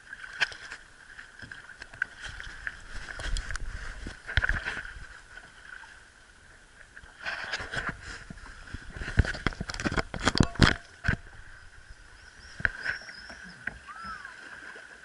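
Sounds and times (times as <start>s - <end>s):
paddle strokes splashing: 0.0s - 15.0s
water slapping against kayak: 0.0s - 15.0s.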